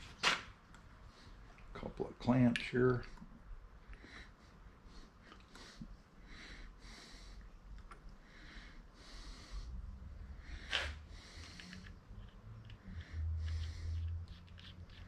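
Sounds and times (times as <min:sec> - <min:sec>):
faint rhythmic breathing: 0:03.0 - 0:15.0.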